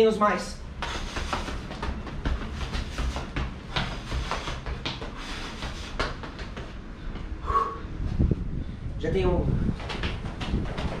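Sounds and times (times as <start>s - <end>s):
sneaker footsteps on tiled floor: 0.6s - 7.4s, 9.6s - 11.0s.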